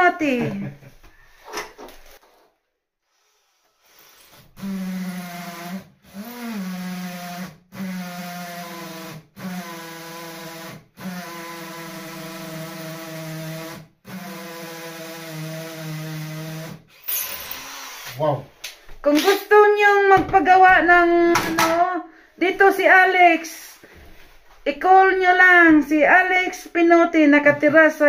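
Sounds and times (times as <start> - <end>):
cordless drill motor running: 3.1 - 18.3.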